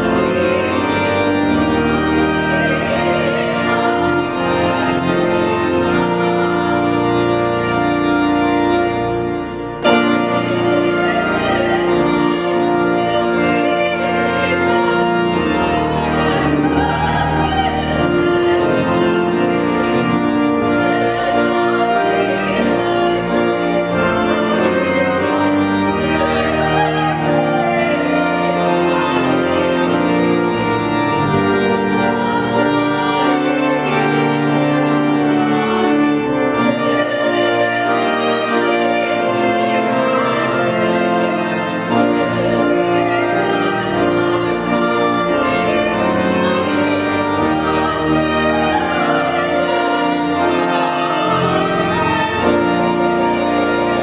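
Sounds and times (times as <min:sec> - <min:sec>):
church organ chords: 0:00.0 - 0:54.0
woman singing a hymn: 0:09.9 - 0:20.2, 0:20.8 - 0:30.0.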